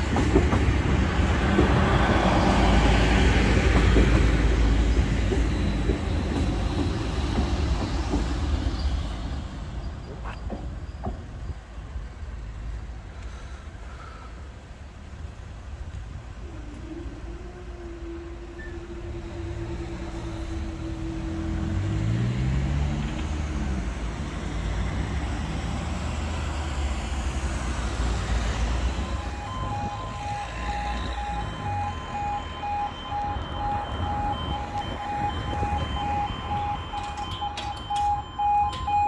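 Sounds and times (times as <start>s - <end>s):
road vehicles pulling away: 16.4s - 39.0s
crossing alarm pulsing tone: 28.8s - 39.0s.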